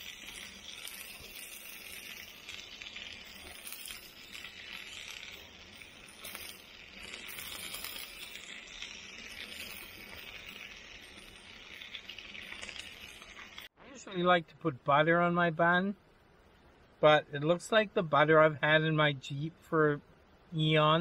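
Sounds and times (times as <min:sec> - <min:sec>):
patty sizzling on a griddle: 0:00.0 - 0:13.7
faint crackles: 0:00.0 - 0:15.0.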